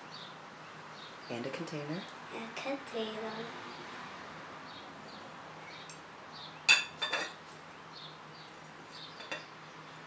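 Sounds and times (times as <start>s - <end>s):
glass jug clinking against mug: 6.7s - 7.4s.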